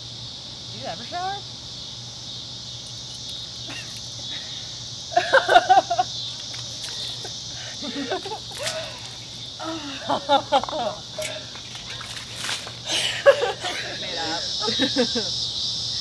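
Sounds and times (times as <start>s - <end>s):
insect chorus: 0.0s - 16.0s
women laughing and squealing: 5.1s - 6.2s, 7.1s - 11.6s, 12.8s - 15.4s.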